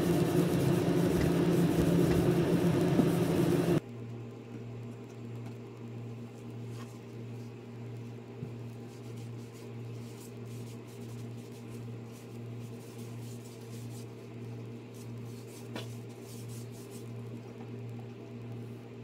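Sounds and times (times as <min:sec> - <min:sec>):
cloth rubbing on wooden stick: 0:00.0 - 0:03.8, 0:08.8 - 0:14.2
steady low hum: 0:00.0 - 0:19.0.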